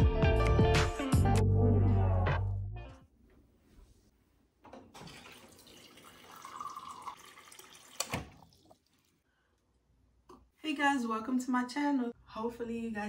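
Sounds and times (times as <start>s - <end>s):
faint water running: 4.7s - 9.4s.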